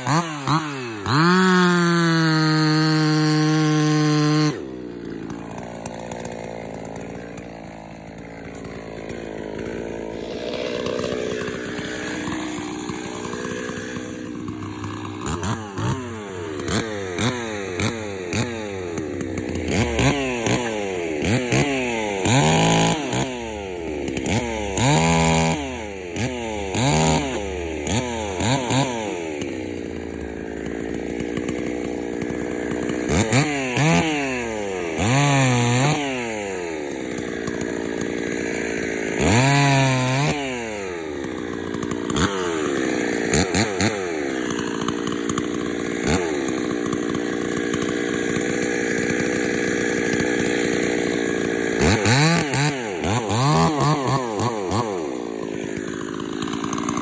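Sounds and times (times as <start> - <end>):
chainsaw revving and idling: 0.0 - 57.0.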